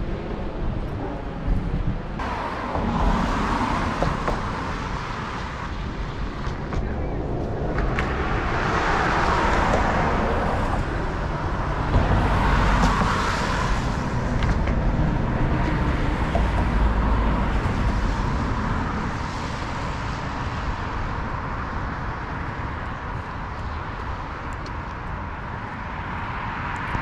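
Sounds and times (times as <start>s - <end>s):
cars passing: 0.0s - 27.0s.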